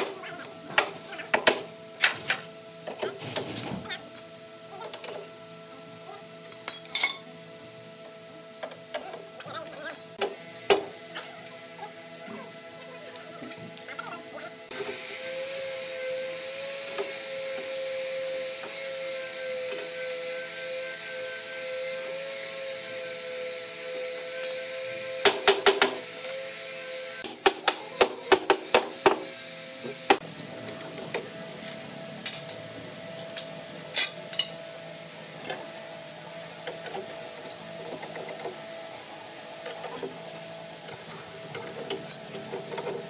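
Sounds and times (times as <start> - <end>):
machine motor whine: 7.4 - 27.3.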